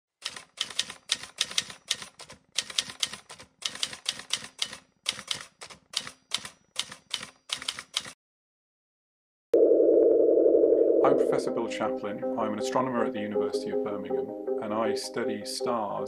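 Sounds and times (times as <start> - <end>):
typewriter keystrokes clacking: 0.2 - 8.2.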